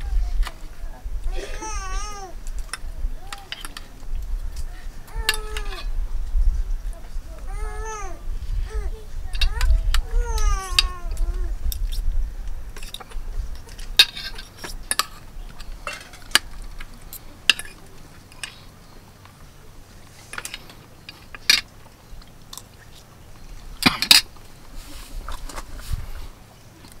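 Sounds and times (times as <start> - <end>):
cutlery clinking on metal plates: 3.4 - 3.9, 12.8 - 18.6.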